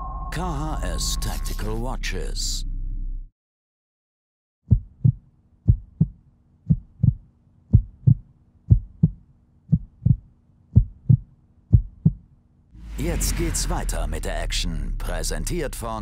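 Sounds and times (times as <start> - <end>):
heartbeat thumps: 4.7 - 12.3.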